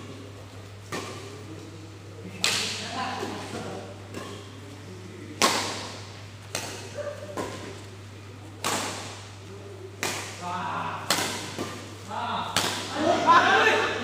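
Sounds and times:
rackets hitting a shuttlecock: 0.8s - 1.4s, 2.2s - 4.6s, 5.3s - 13.1s.

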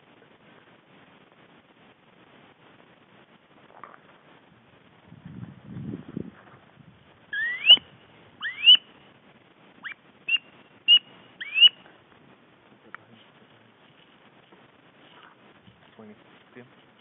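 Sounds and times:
low rustle: 0.0s - 17.0s
duck whistled squeals: 7.4s - 8.9s, 9.8s - 11.8s.

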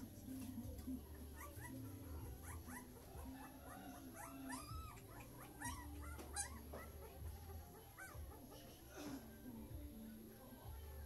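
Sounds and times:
high-pitched animal whining: 1.4s - 8.6s.

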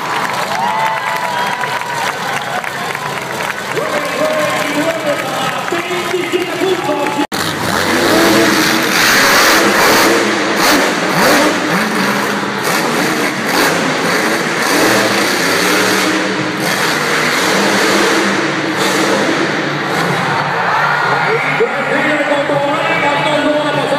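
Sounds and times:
monster truck engine revving: 0.0s - 23.9s.

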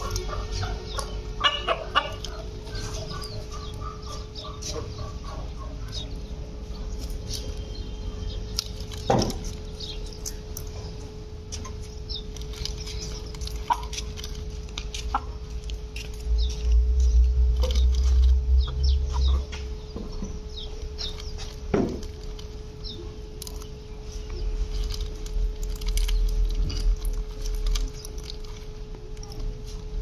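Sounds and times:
hen clucking: 0.0s - 23.3s
low rumble: 15.5s - 28.6s.

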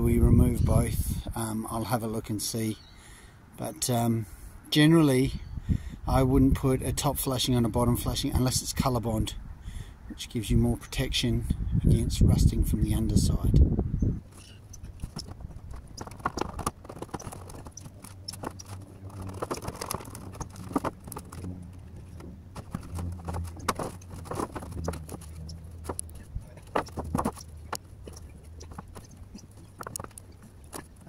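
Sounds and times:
low hum: 11.5s - 31.0s.

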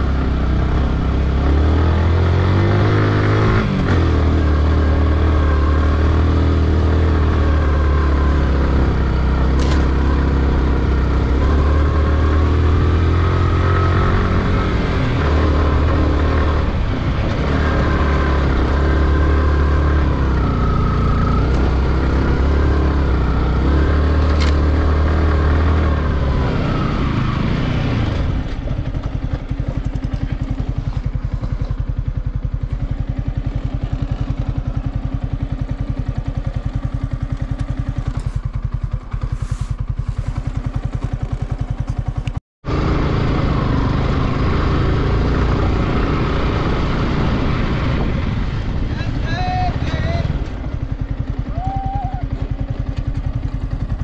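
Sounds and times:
motorcycle engine revving: 0.0s - 54.0s
motorcycle engine idling: 28.4s - 42.4s, 49.4s - 54.0s.

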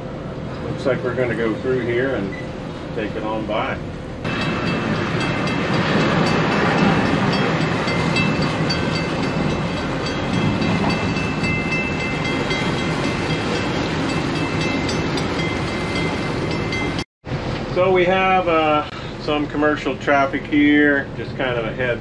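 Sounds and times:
boat engines rumbling: 0.0s - 22.0s.

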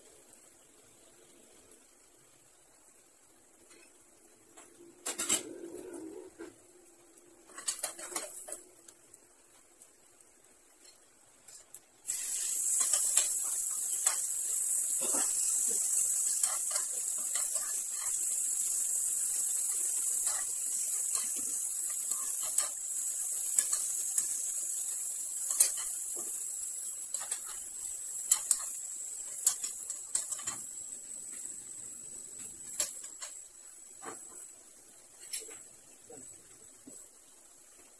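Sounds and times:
chicken sizzling in oil: 0.0s - 37.9s
spatula scraping pan: 14.9s - 18.7s.

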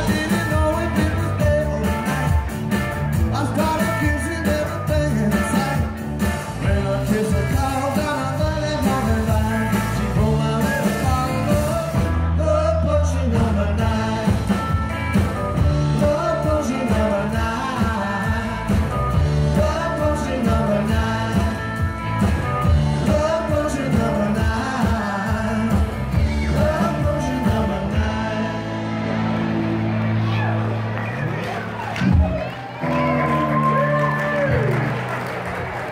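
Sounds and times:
drum kit beat: 0.0s - 12.3s, 13.4s - 28.4s
man singing: 0.0s - 14.9s, 15.6s - 29.0s
electric bass: 0.0s - 35.9s
electric guitars: 0.0s - 35.9s.

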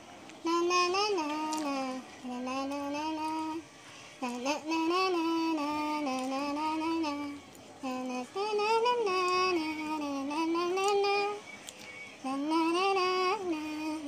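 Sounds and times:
woman singing wordless melody: 0.4s - 11.5s, 12.2s - 14.0s.

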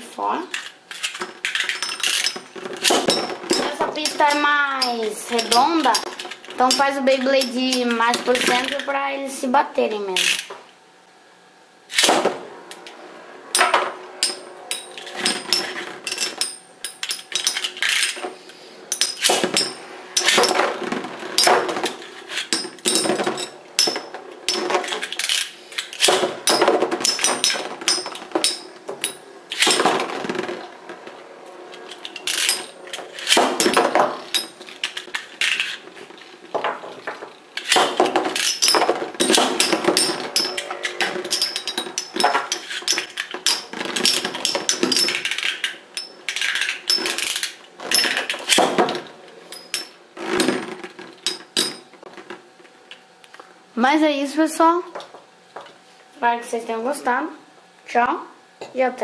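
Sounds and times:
spinning tops clacking metallically: 0.6s - 9.0s, 13.6s - 18.2s, 31.7s - 35.8s, 37.6s - 48.7s.

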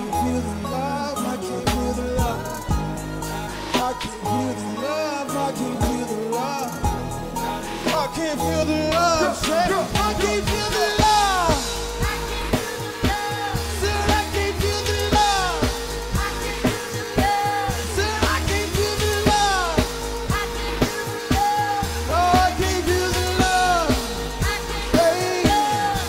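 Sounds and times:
deep bass line: 0.0s - 26.0s
drum beat: 9.0s - 26.0s.

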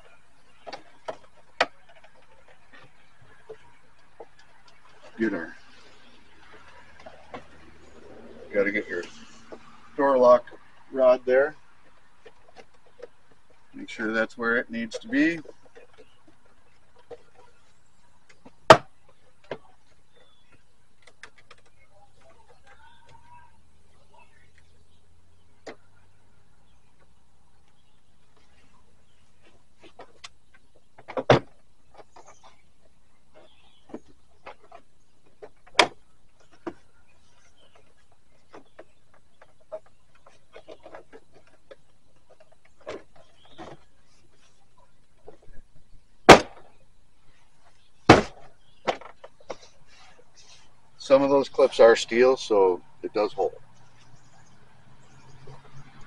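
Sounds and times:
faint clicks and rattles: 11.5s - 46.1s.

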